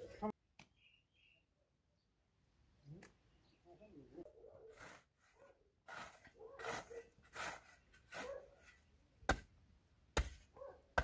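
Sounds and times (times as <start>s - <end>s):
spade scraping dry earth: 4.6s - 9.5s.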